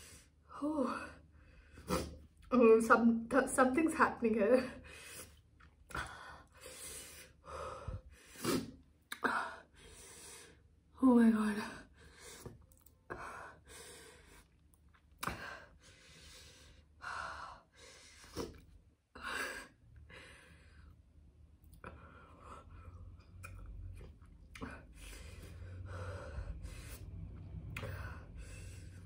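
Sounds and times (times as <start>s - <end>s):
woman breathing hard: 6.0s - 10.7s, 25.0s - 29.0s.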